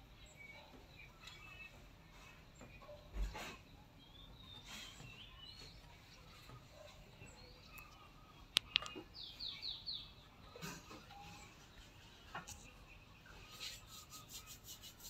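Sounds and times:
small birds chirping: 0.0 - 15.0
sharp clicks: 8.5 - 9.0.

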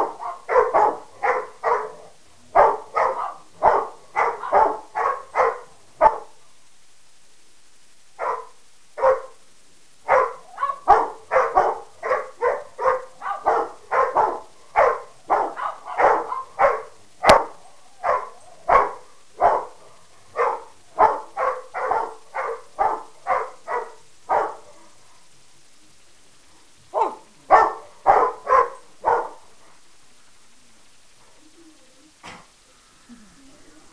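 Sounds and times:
dogs barking: 0.0 - 6.4, 8.2 - 9.4, 10.1 - 25.3, 26.9 - 29.8.

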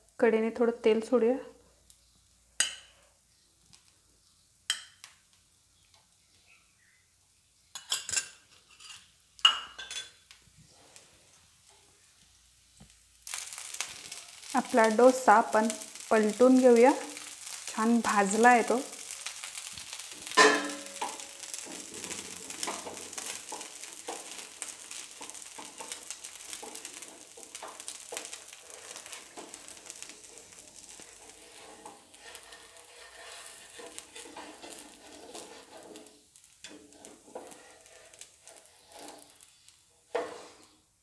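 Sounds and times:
dosa sizzling on a pan: 0.0 - 41.0
metal spatula scraping pan: 17.0 - 40.8.

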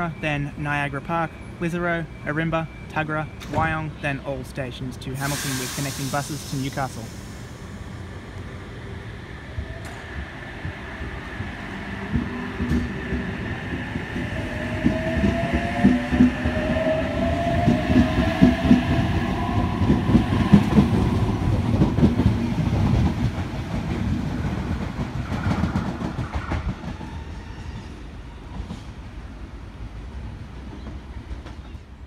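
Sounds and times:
train traction motors whining: 5.2 - 23.1.

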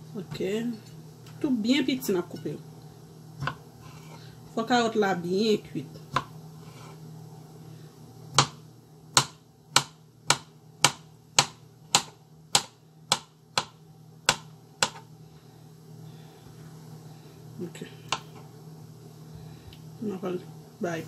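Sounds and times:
knife chopping on cutting board: 3.4 - 4.2, 6.1 - 6.9, 8.3 - 15.0.

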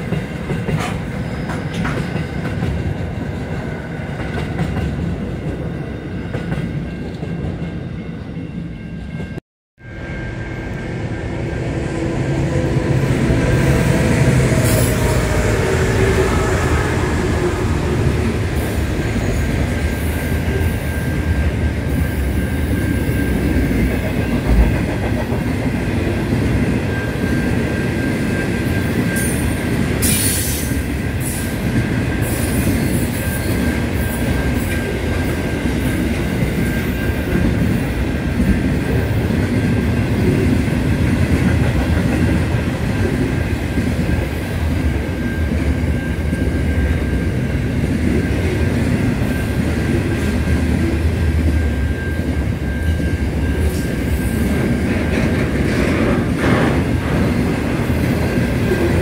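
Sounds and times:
freight train wheels rumbling: 0.0 - 9.4, 10.0 - 59.0.

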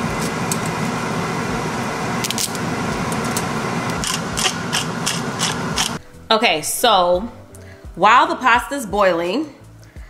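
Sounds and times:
hand grinder clicking: 3.9 - 6.0.

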